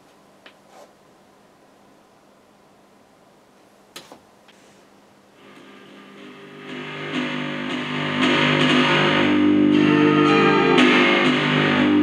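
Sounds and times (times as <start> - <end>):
music through small speakers: 5.4 - 12.0.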